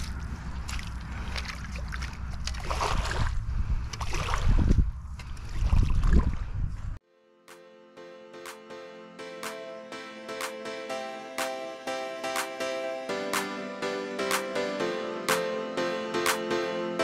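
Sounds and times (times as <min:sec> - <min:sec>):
music: 0:07.0 - 0:17.0.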